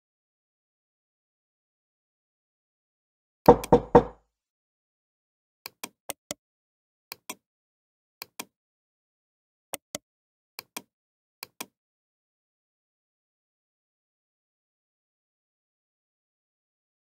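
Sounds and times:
computer mouse clicking: 8.2s - 8.5s.

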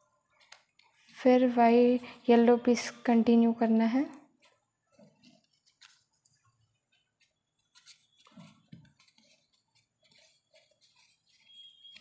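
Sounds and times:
paper rustling and ticking: 0.3s - 1.1s, 4.4s - 12.0s.

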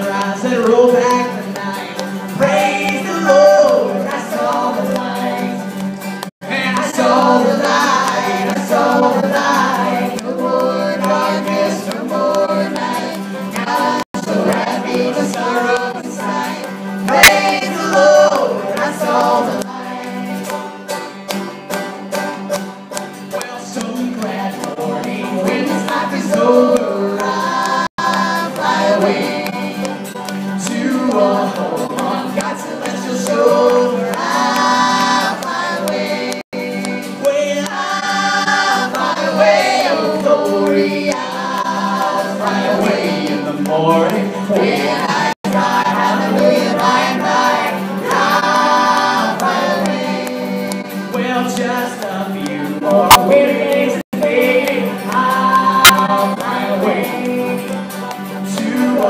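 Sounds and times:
people singing along: 0.0s - 21.8s, 23.2s - 59.0s
banjos and acoustic guitar: 0.0s - 59.0s
woman singing lead: 1.0s - 5.7s.

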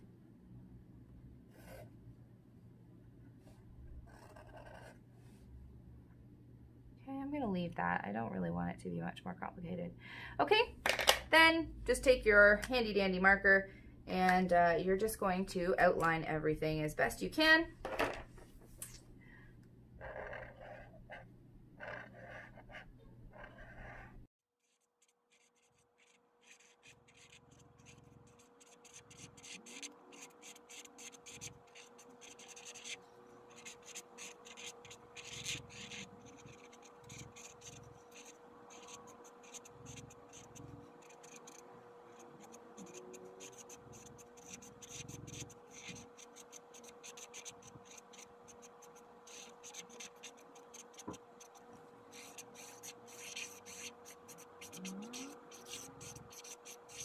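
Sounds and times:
faint steady hum: 0.0s - 24.3s, 26.0s - 57.0s
marker scratching on canvas: 1.5s - 1.9s, 4.1s - 5.0s, 20.0s - 21.2s, 21.8s - 57.0s.

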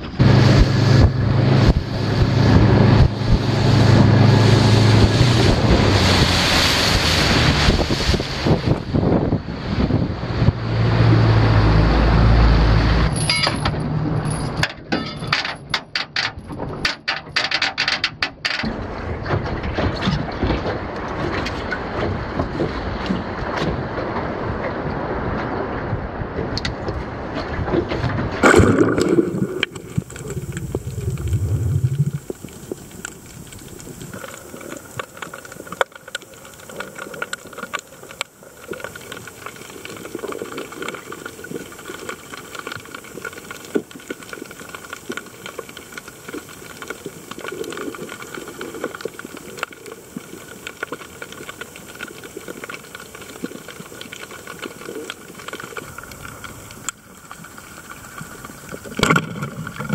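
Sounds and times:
water lapping: 0.0s - 12.3s
wind buffeting microphone: 0.0s - 12.9s, 18.8s - 34.2s
person splashing into water: 28.4s - 30.3s
muffled underwater hiss: 28.4s - 59.9s.

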